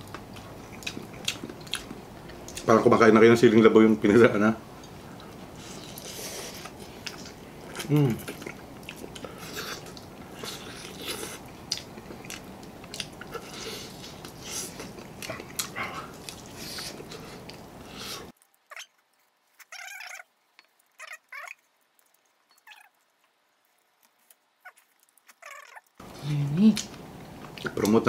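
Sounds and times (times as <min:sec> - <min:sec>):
chewing crispy fried chicken: 0:00.0 - 0:03.0, 0:04.8 - 0:28.0
steady background hiss: 0:00.0 - 0:28.0
wavering squeaky sounds: 0:18.6 - 0:23.1, 0:24.6 - 0:26.0.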